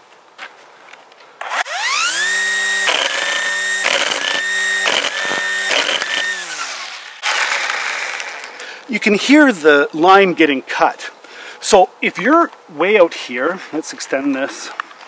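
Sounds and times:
trimmer line slapping: 1.4 - 8.5
string trimmer motor whining: 1.4 - 8.6.

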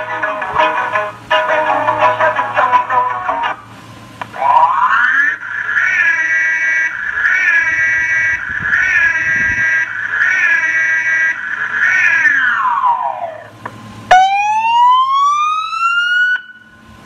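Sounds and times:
electronic siren wailing: 4.4 - 16.9.

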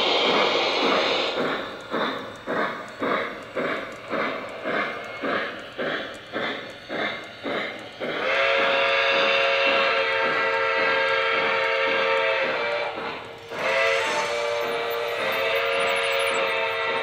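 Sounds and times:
model steam locomotive chuffing: 0.0 - 17.0
multi-tone steam whistle: 8.2 - 17.0.

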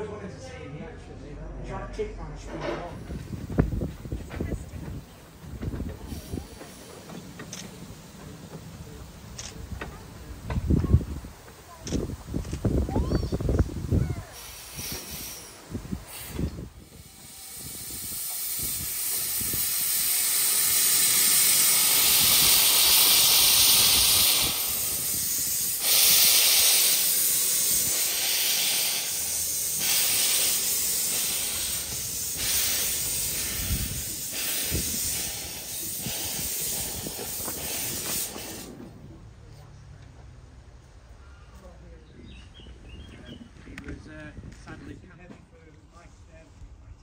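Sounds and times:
steam locomotive hissing and puffing: 2.8 - 39.2.

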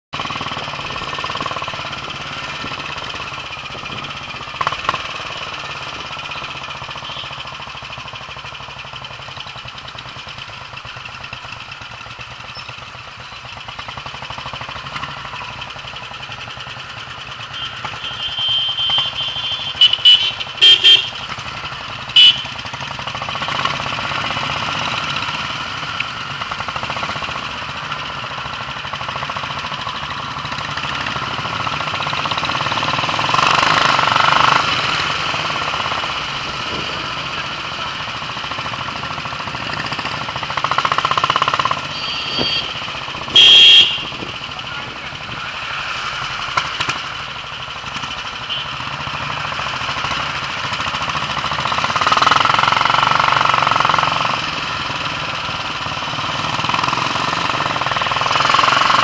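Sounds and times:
motorcycle engine running: 0.1 - 59.0
road noise: 0.1 - 59.0
vehicle horn honking: 6.9 - 7.5, 17.4 - 21.3, 22.0 - 22.7, 41.8 - 44.6, 48.4 - 48.8.

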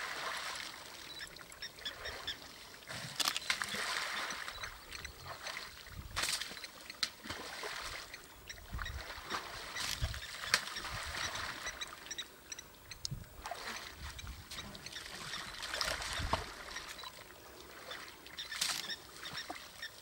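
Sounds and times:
water sloshing and splashing: 0.0 - 12.2, 13.3 - 19.9
sharp splashes: 2.9 - 4.7, 5.3 - 8.0.

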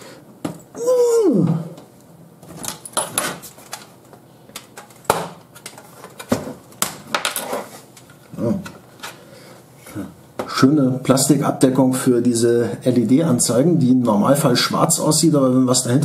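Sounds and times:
plastic parts and tools handled: 2.4 - 9.2.

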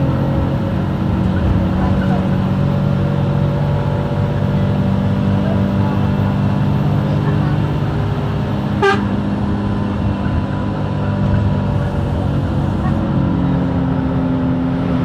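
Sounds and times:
bus diesel engine running: 0.0 - 15.0
bus horn toot: 8.7 - 9.4.

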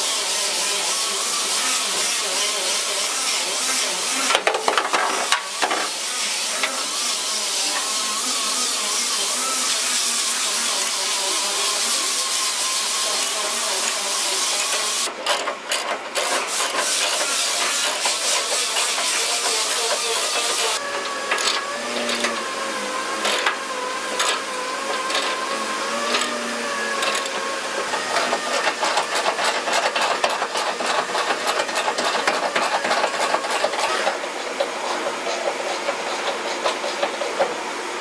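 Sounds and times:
ratchet wrench clicking: 23.2 - 23.6, 24.2 - 25.4, 26.1 - 26.4, 27.0 - 27.4.

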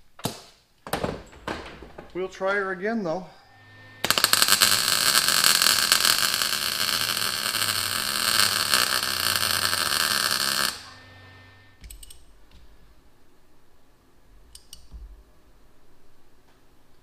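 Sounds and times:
arc welder crackling: 3.6 - 12.2.

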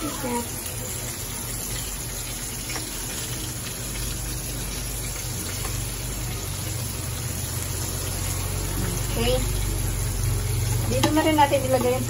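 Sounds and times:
fish sizzling in hot oil: 0.0 - 12.0.

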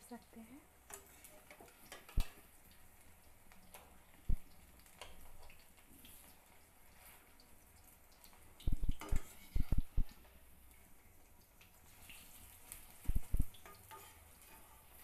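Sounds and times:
fritters sizzling in hot oil: 0.0 - 15.0
metal spatula clacking on pan: 0.9 - 2.5, 8.9 - 9.7, 13.5 - 14.8.

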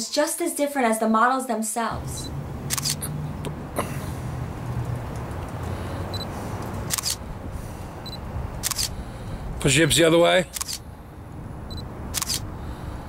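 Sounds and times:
street background noise: 0.9 - 13.0
camera shutter firing: 2.7 - 3.1, 6.9 - 7.2, 8.6 - 9.0, 10.5 - 10.8, 12.1 - 12.5.

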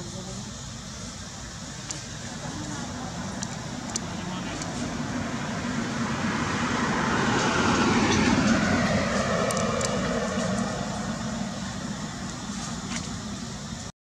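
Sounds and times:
motor vehicle passing by: 2.3 - 13.5.

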